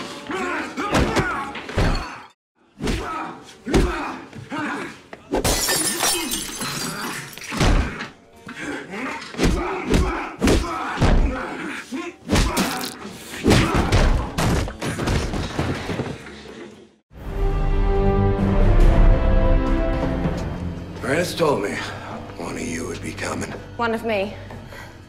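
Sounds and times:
men grunting: 0:00.2 - 0:05.3, 0:06.8 - 0:14.4
punches and body thuds: 0:02.8 - 0:04.2, 0:09.4 - 0:11.5, 0:12.3 - 0:16.0.

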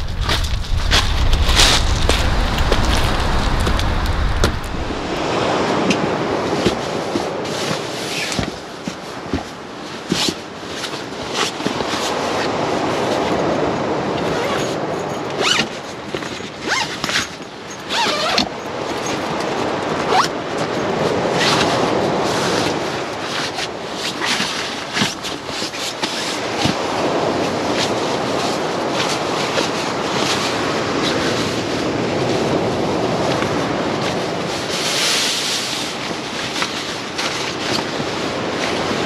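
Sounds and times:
wind rushing: 0:00.0 - 0:06.6
zippers rasping and clicking: 0:14.2 - 0:21.8, 0:23.4 - 0:26.8
nylon fabric rustling: 0:15.4 - 0:18.5, 0:19.1 - 0:31.6.

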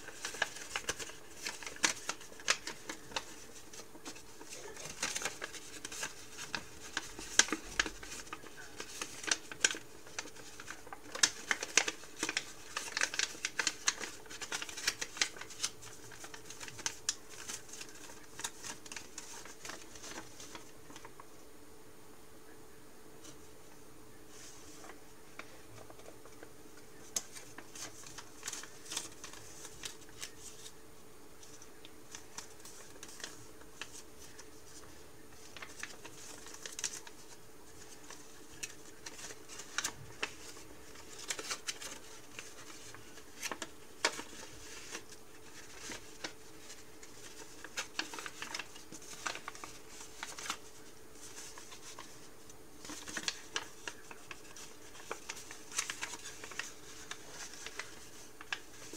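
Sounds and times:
paper crinkling as folded: 0:00.0 - 0:21.3, 0:24.3 - 0:30.8, 0:31.4 - 0:58.9
faint steady hum: 0:00.0 - 0:58.9.

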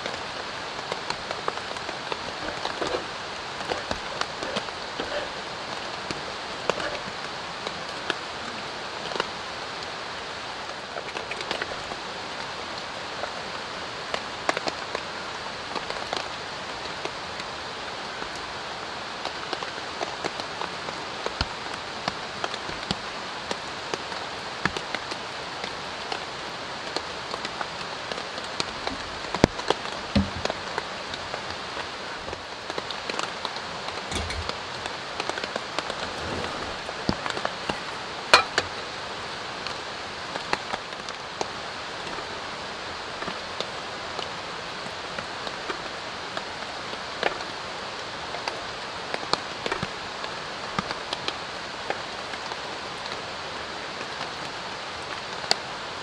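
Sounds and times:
light rain: 0:00.0 - 0:56.0
cookware knocking: 0:38.4 - 0:38.6.

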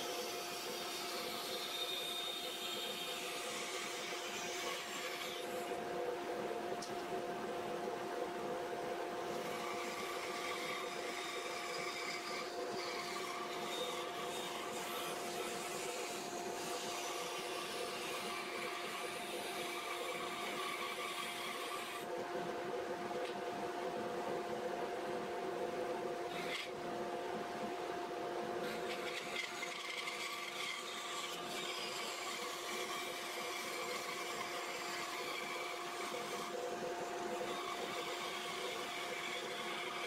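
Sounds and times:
dust extraction hum: 0:00.0 - 0:40.0
bandsaw cutting wood: 0:09.3 - 0:22.1, 0:28.6 - 0:40.0.

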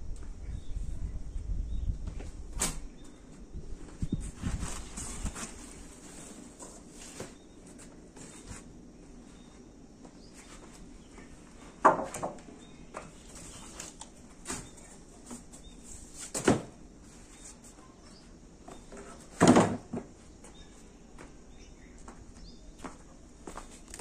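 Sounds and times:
wood knocking and clattering: 0:11.8 - 0:13.1.

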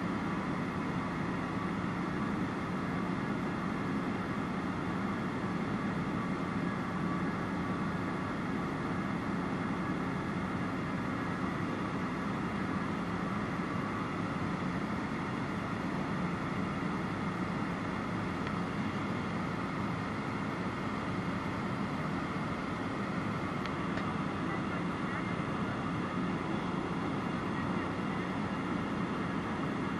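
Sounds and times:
light aircraft engine drone: 0:00.0 - 0:29.9.

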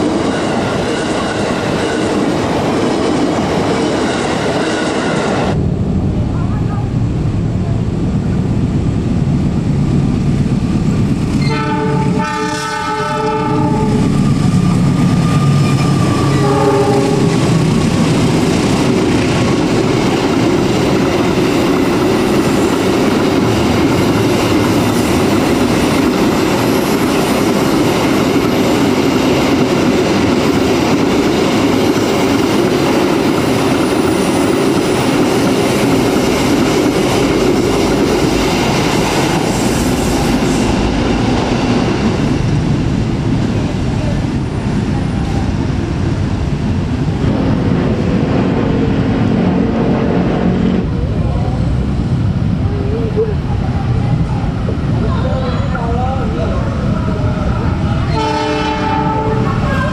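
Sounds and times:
freight wagons rumbling on rails: 0:00.0 - 0:59.9
locomotive horn: 0:11.4 - 0:14.1, 0:16.3 - 0:17.4, 0:58.1 - 0:59.9.

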